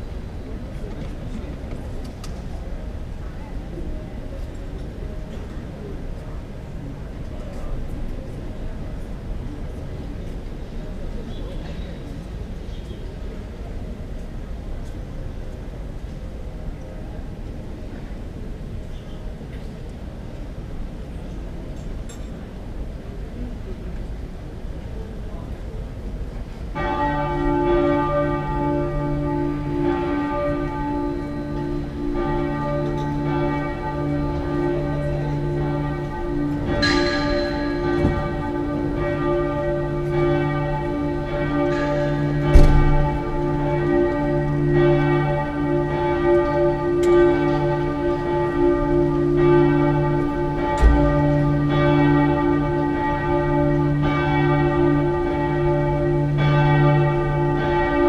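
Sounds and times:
church bells ringing: 26.6 - 58.0
sharp knock: 42.5 - 43.0.

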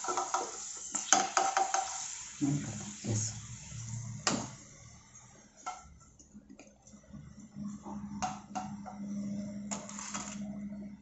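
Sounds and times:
low steady hum: 2.4 - 11.0.

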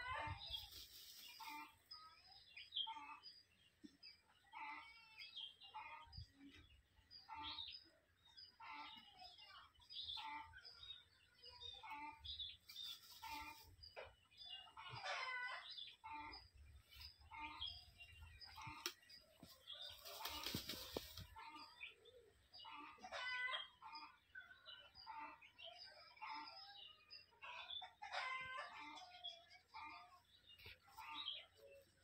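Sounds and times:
sand rustling and scraping: 0.4 - 1.8.

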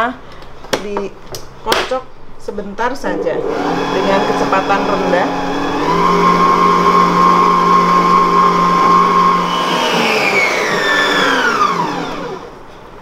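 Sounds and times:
stand mixer running: 3.2 - 12.6
beater working batter in steel bowl: 3.4 - 12.5.

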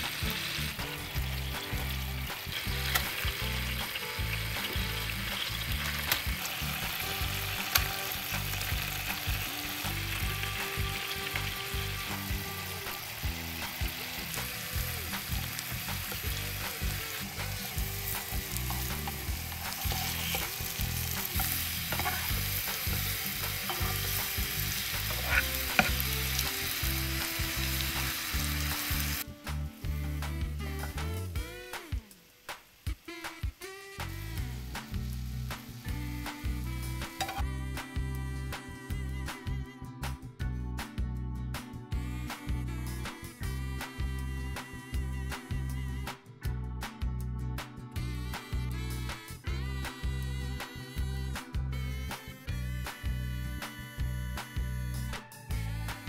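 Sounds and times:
bananas frying in butter: 0.0 - 37.4
spatula ticks and scrapes: 21.2 - 22.3.

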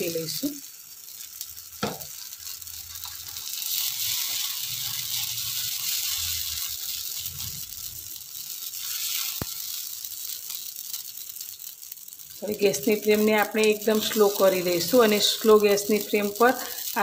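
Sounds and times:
batter sizzling in hot oil: 0.0 - 17.0.

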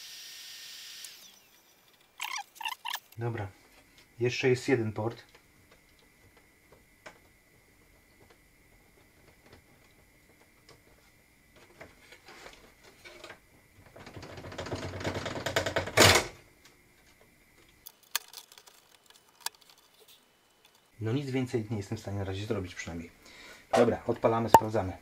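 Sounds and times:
rustling of computer cables: 17.7 - 20.9
hardware clicks and rattles: 17.8 - 20.9.

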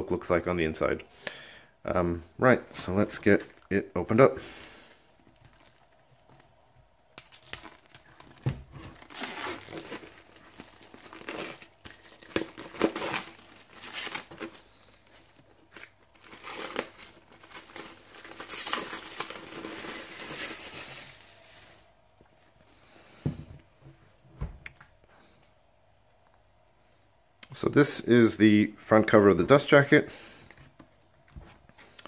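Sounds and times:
plastic shrink-wrap crinkling: 3.0 - 22.0.

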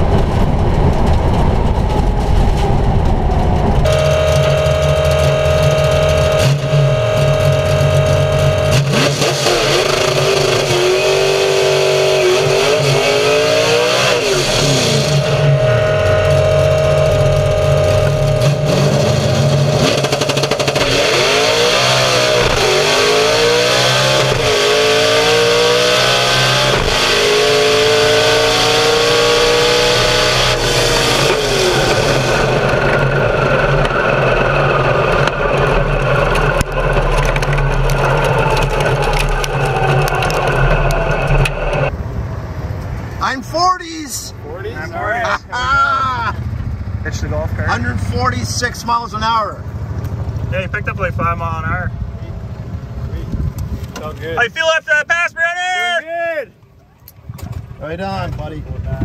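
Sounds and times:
drag car engine revving: 0.0 - 43.3.

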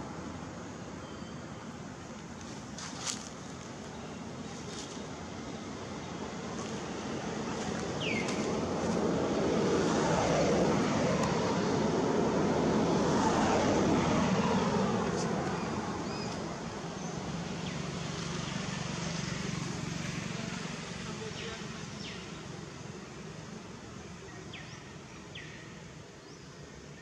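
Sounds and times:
vehicle engine passing by: 6.4 - 22.1.

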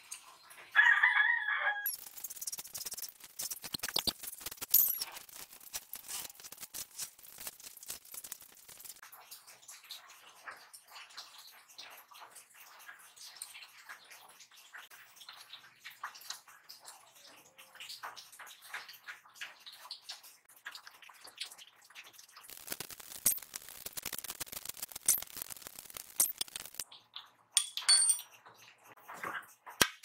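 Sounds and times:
sharp metal clinks: 4.7 - 5.2, 27.6 - 28.2.

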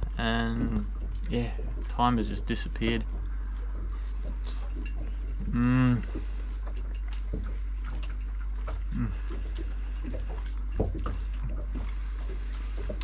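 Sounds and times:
steady low hum: 0.0 - 13.0
man humming: 0.2 - 0.9, 5.4 - 6.2, 8.9 - 9.4
chewing mouth sounds: 3.9 - 13.0.

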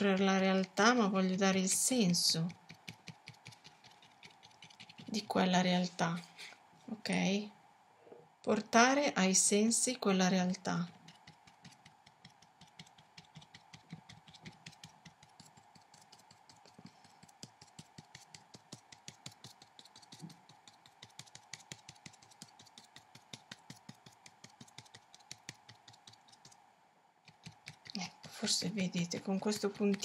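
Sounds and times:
paintbrush tapping on paper: 2.2 - 5.1, 11.0 - 26.6, 27.2 - 30.0.

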